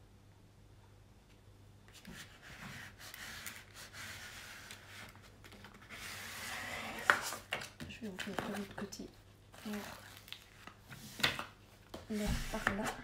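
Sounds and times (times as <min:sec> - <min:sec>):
packaging rustling and crinkling: 0:07.0 - 0:13.0.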